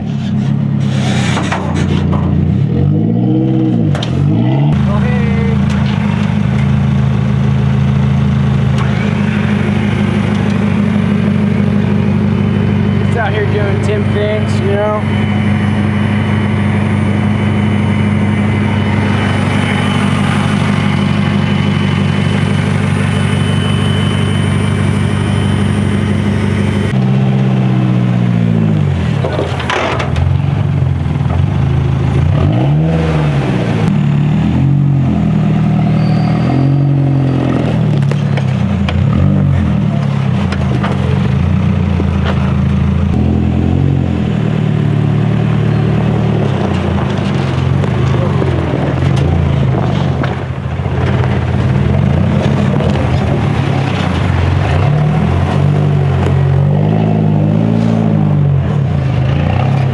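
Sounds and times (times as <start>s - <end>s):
off-road vehicle engine revving: 0.0s - 59.9s.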